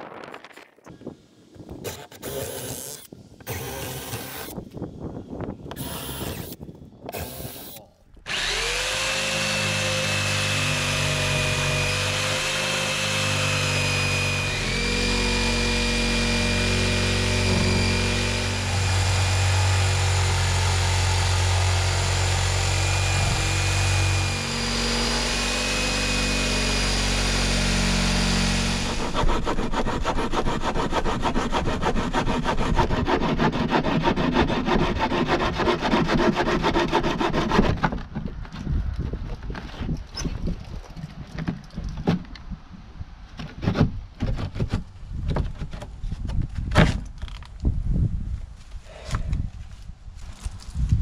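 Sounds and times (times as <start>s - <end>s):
power saw cutting wood: 1.8s - 4.6s, 5.7s - 37.9s
hand saw strokes through wood: 7.2s - 37.9s.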